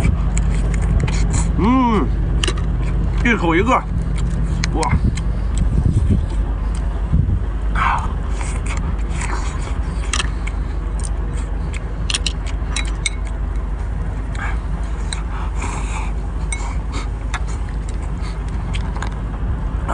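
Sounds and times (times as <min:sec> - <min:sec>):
chewing: 0:00.0 - 0:01.6, 0:03.9 - 0:06.9, 0:08.3 - 0:19.2
low background rumble: 0:00.0 - 0:19.9.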